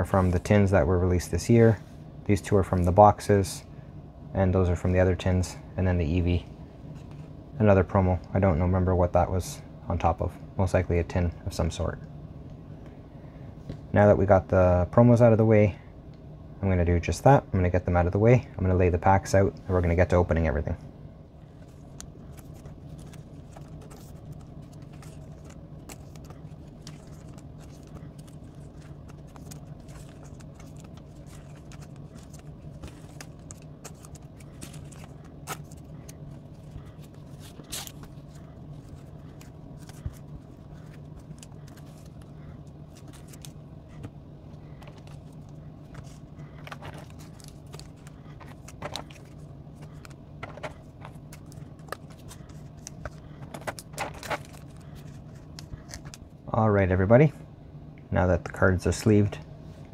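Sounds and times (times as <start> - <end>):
steady low hum: 0.0 - 59.9
cards and foil rustling: 21.6 - 56.2.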